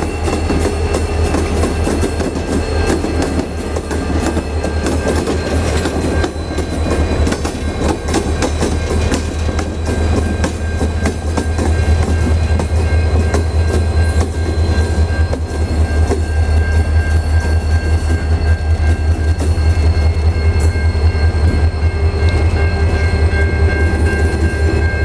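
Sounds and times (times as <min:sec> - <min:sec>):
deep pulsing locomotive engine: 0:00.0 - 0:25.0
steady high tone: 0:00.0 - 0:25.0
train wheel clicks: 0:00.1 - 0:14.5.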